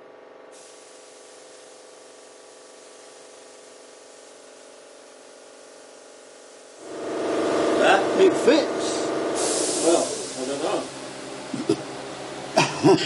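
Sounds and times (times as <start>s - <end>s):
low hum: 6.8s - 12.0s.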